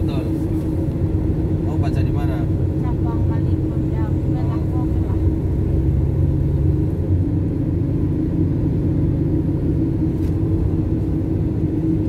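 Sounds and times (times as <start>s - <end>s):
car engine and road rumble: 0.0s - 12.0s
constant droning tone: 0.0s - 12.0s.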